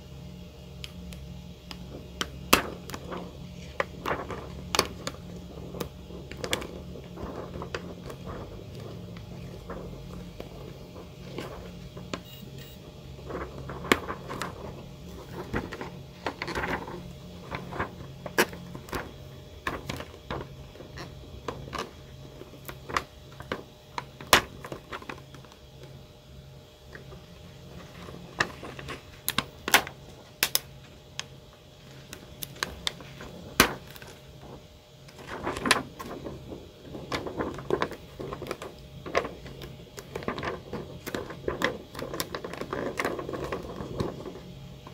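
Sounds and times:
plastic sheet rustling: 1.8s - 12.1s, 13.1s - 26.1s, 26.8s - 44.9s.

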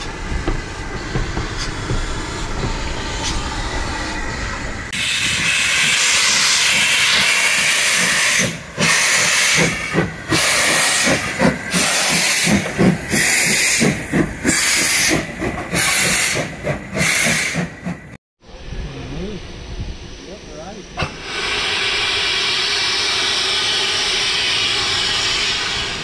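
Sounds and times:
locomotive exhaust beats: 0.0s - 3.9s, 5.0s - 18.2s
steam locomotive hissing: 0.0s - 26.0s.

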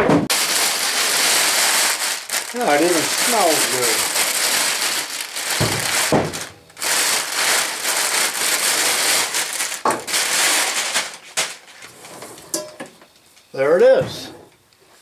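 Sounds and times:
plastic bag crinkling: 0.3s - 11.9s.

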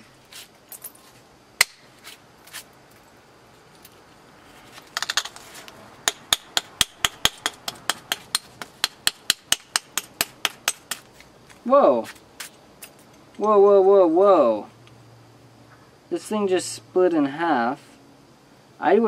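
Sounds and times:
knapping tool clicking on stone: 6.1s - 11.1s.

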